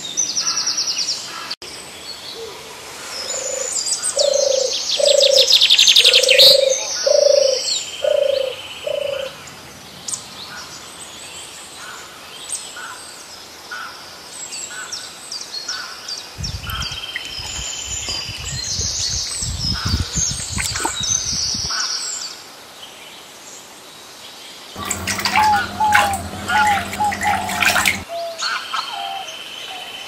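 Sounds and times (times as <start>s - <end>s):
low rumbling noise: 24.8s - 28.0s.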